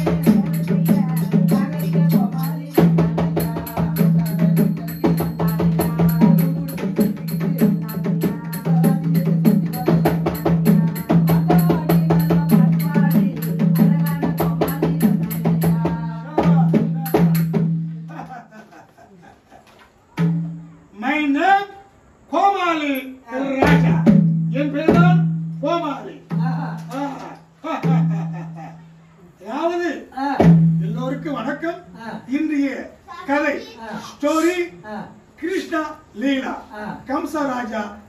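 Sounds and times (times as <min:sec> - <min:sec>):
person singing: 0:00.0 - 0:17.6
mridangam drumming: 0:00.0 - 0:17.9, 0:23.6 - 0:25.4, 0:30.4 - 0:30.9.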